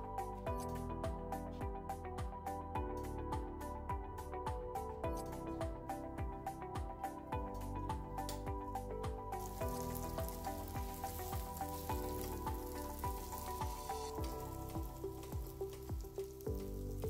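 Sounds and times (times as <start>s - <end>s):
background music with steady beat: 0.0s - 17.0s
meat sizzling in a frying pan: 9.4s - 17.0s.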